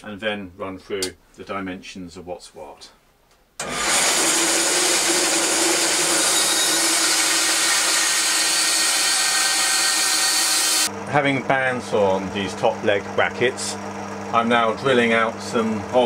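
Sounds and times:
bandsaw cutting wood: 3.6 - 10.9.

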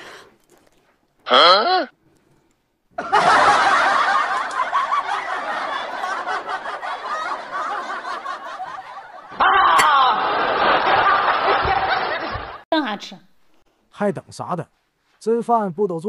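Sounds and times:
canned audience laughter: 3.0 - 9.4, 10.0 - 12.6.

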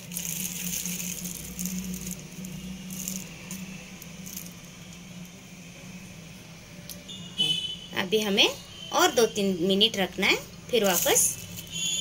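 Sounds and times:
plastic glove crinkling: 0.0 - 4.7, 10.8 - 12.0.

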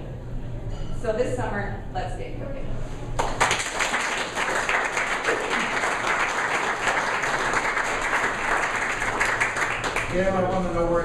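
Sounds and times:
audience applauding: 3.2 - 10.4.

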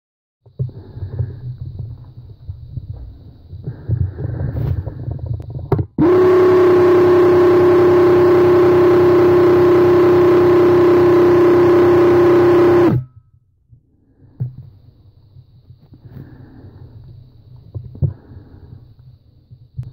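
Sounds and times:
paint sprayer pump pulsing: 6.0 - 13.0.

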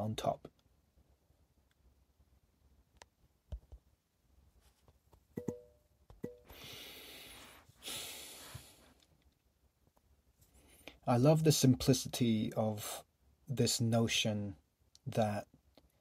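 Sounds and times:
person breathing close to microphone: 6.4 - 9.0.

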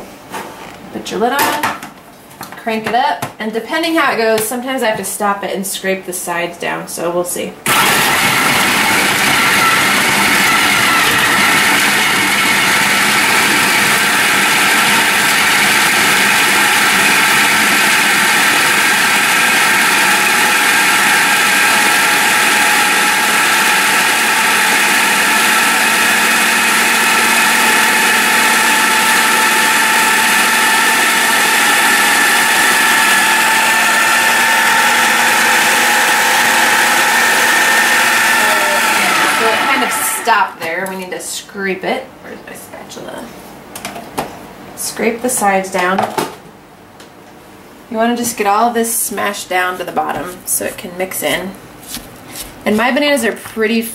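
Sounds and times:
food processor grinding: 7.7 - 40.6.

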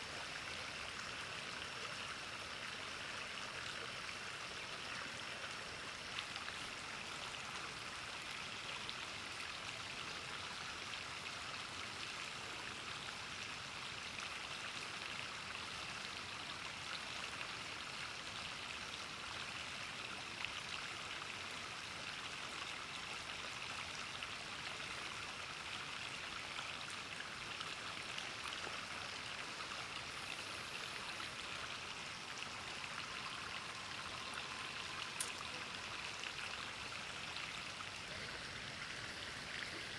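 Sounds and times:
river water flowing: 0.0 - 39.9.

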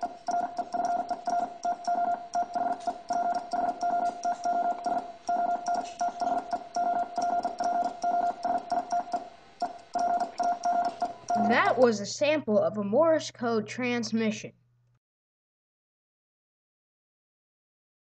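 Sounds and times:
telegraph key clicks: 0.0 - 11.4
morse code beeps: 0.0 - 11.8.

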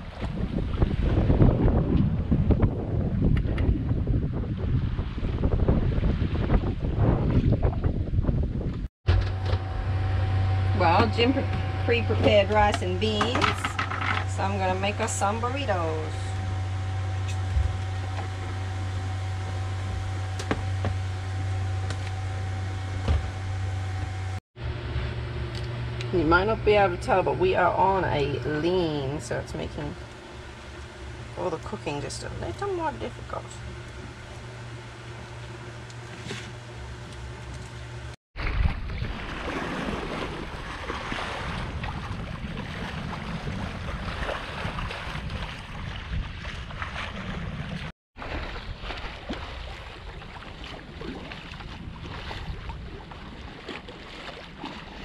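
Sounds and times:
sea rushing along hull: 0.0 - 8.6, 9.2 - 55.0
wind buffeting microphone: 0.0 - 8.9, 10.3 - 23.5, 38.4 - 55.0
boat engine droning: 0.0 - 38.2, 38.8 - 55.0.

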